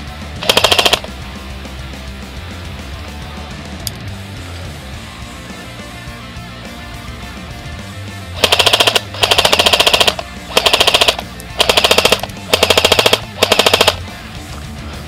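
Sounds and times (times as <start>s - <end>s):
airsoft rifle full-auto bursts: 0.4s - 1.1s, 8.4s - 14.0s.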